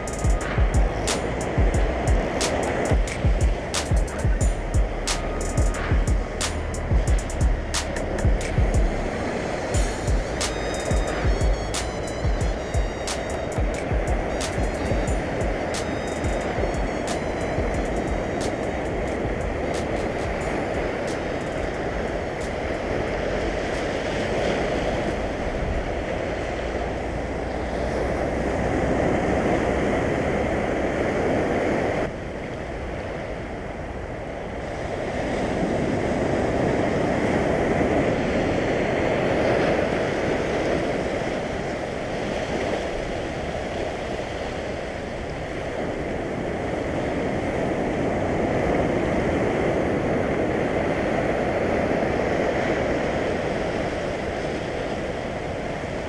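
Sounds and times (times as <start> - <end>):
surf breaking over rocks: 0.0 - 11.9, 13.0 - 56.0.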